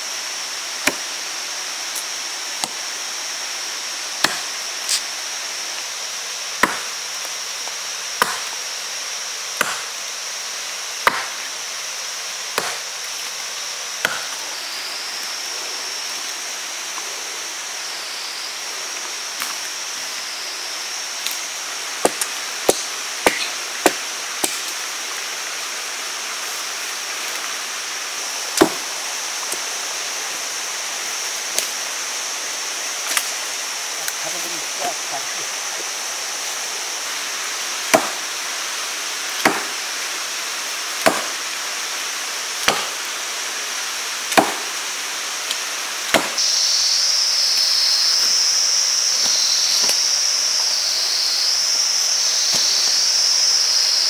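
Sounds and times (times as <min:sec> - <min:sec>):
steady high hiss: 0:00.0 - 0:54.0
knife chopping: 0:06.6 - 0:06.8, 0:08.2 - 0:08.5, 0:09.6 - 0:09.9, 0:11.0 - 0:11.3, 0:39.4 - 0:39.7, 0:41.0 - 0:41.2, 0:42.7 - 0:42.9, 0:44.3 - 0:44.6, 0:46.1 - 0:46.3.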